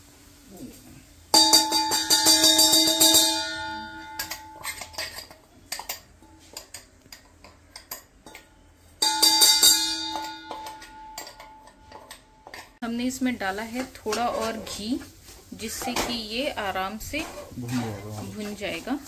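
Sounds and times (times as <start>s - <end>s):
steel jar knocked rapidly: 1.4s - 4.6s.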